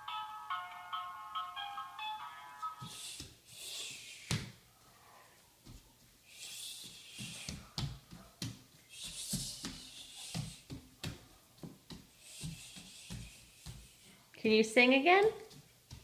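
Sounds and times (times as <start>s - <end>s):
faint hiss: 2.7s - 8.0s, 8.7s - 14.5s
bare feet patting on wooden floor: 2.8s - 3.4s, 5.6s - 14.2s, 15.1s - 16.0s.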